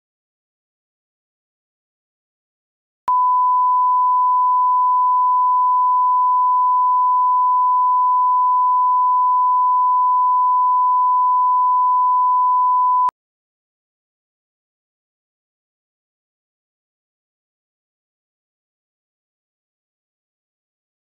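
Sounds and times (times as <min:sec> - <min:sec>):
steady test tone beep: 0:03.1 - 0:13.1.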